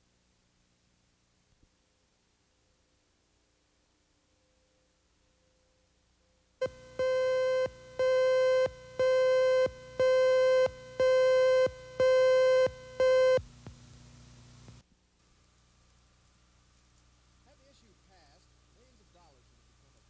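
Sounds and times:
buzzy countdown beeps: 0:06.6 - 0:13.4.

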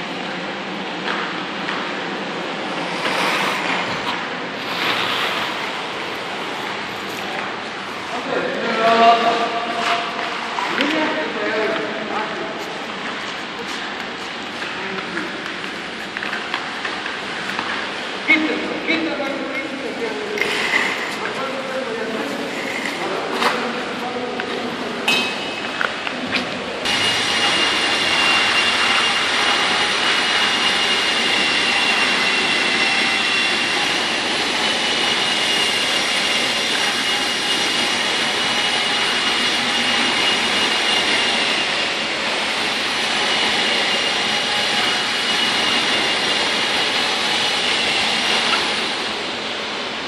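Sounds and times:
electric motor whine: 0:26.8 - 0:49.2.

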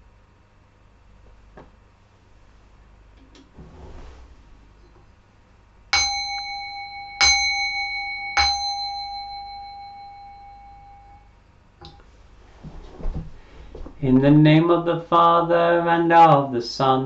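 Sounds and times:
singing bowl struck and ringing: 0:06.0 - 0:11.3.

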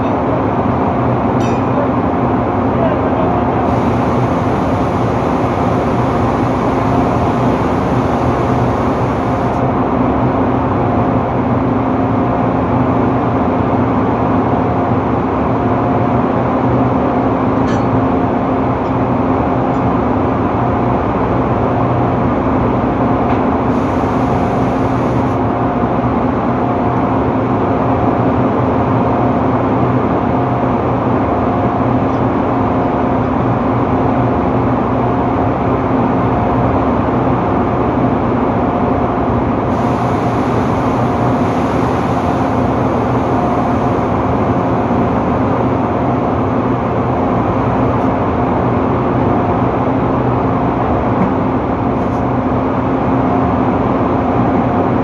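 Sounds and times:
drilling rig machinery drone: 0:00.0 - 0:09.9, 0:23.2 - 0:25.8, 0:39.4 - 0:48.5
high machine tone: 0:03.7 - 0:09.6.

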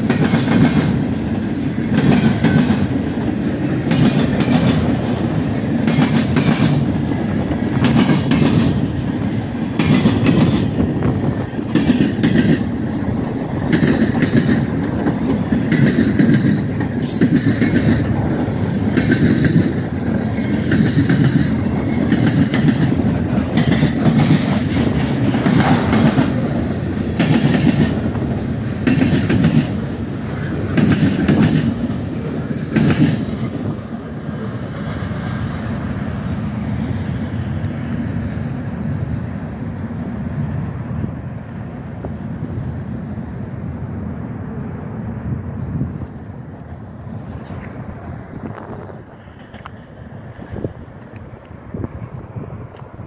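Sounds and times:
train wheels clacking: 0:00.0 - 0:35.9
heavy train rumble: 0:00.0 - 0:53.0.

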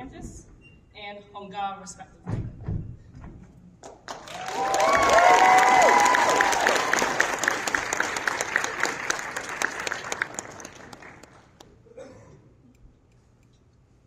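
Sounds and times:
audience applause: 0:04.1 - 0:11.6.

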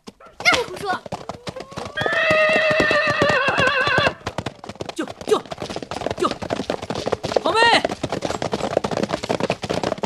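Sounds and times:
galloping hoofbeats: 0:00.0 - 0:10.0
horse whinnying: 0:01.4 - 0:04.4.

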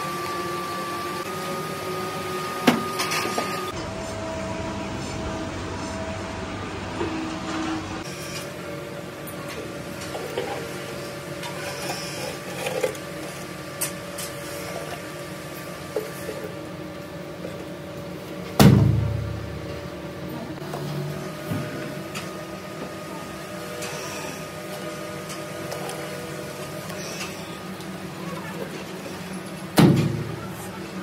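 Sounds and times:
workshop machinery hum: 0:00.0 - 0:31.0
loud heavy thud: 0:18.6 - 0:19.6.

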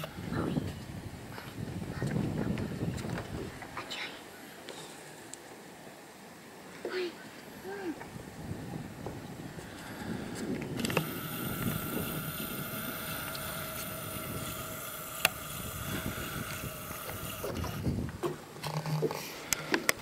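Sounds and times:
wind and handling rumble: 0:00.0 - 0:05.5, 0:06.7 - 0:20.0
motor whining: 0:10.4 - 0:19.1.

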